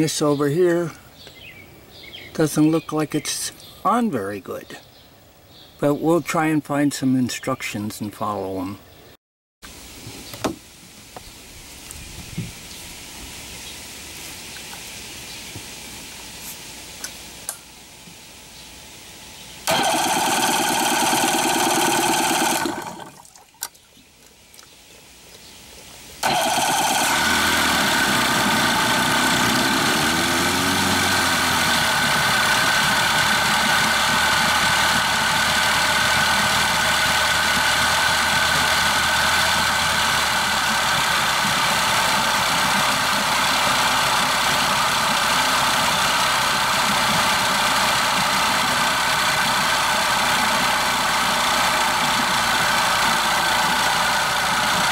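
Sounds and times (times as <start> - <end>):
outboard engine running: 19.7 - 23.2, 26.2 - 54.9.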